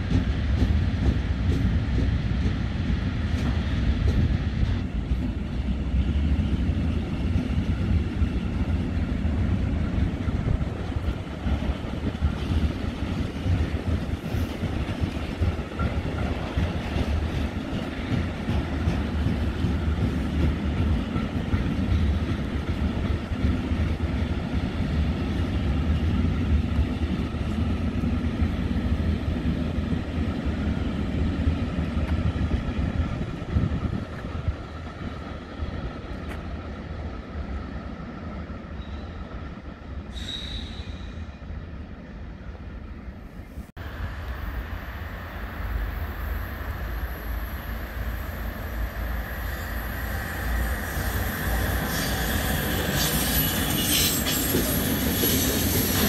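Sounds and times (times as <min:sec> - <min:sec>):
freight train wheels rumbling: 0:00.0 - 0:56.0
high wheel squeal: 0:40.1 - 0:41.4, 0:49.2 - 0:56.0.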